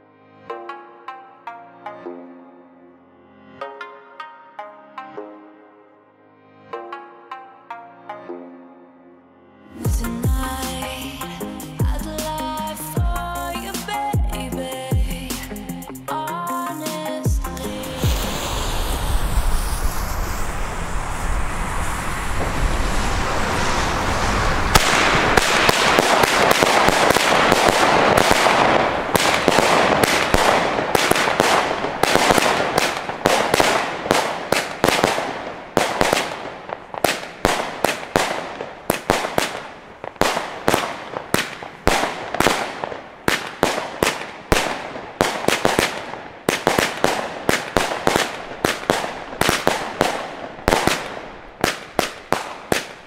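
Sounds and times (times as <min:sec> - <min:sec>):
firework launches and bursts: 0:16.9 - 0:53.0
steady rushing noise: 0:17.5 - 0:42.3.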